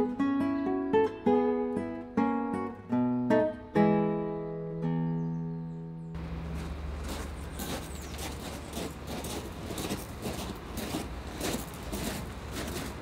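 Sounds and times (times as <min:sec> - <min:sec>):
footsteps crunching on gravel: 0:06.2 - 0:13.0
steady low rumble: 0:06.2 - 0:13.0.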